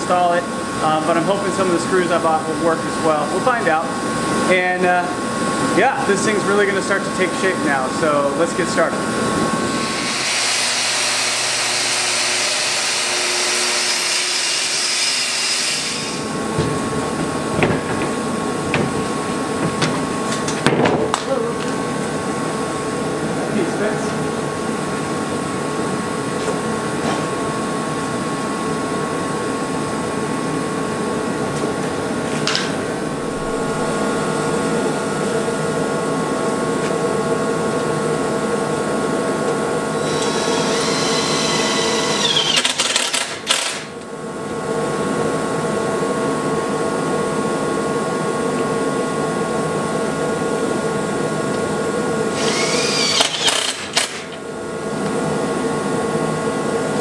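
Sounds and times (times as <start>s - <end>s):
power drill whirring: 9.9s - 16.3s, 40.0s - 43.9s, 52.3s - 54.4s
motor hum: 30.8s - 44.8s, 51.5s - 56.4s.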